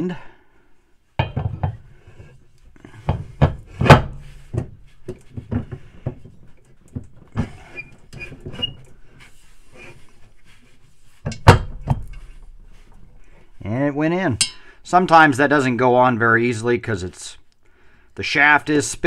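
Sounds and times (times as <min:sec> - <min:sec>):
metallic knocks and clunks: 0:01.2 - 0:08.9, 0:11.2 - 0:13.2.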